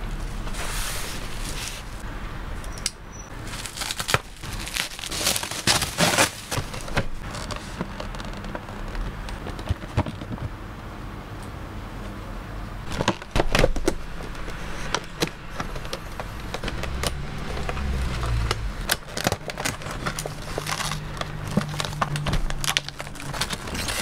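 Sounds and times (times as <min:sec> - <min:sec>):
plastic packaging crinkling: 0:03.4 - 0:10.3, 0:12.9 - 0:24.0.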